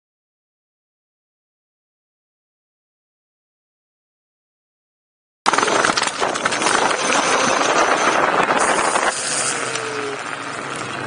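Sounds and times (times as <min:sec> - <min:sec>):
tyres crunching over gravel: 0:05.5 - 0:11.0
wind on microphone: 0:05.6 - 0:11.0
faint motor whine: 0:07.0 - 0:11.0.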